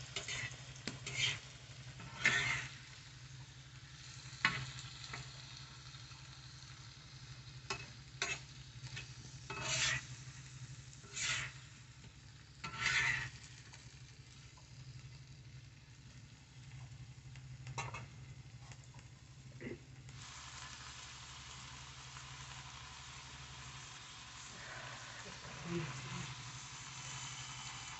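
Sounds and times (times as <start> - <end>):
metal spatula scraping pan: 0.0 - 2.8, 7.7 - 10.2, 11.0 - 11.7, 12.6 - 13.4
hot oil sizzling: 0.0 - 27.9
spatula clicking on pan: 7.7 - 9.7.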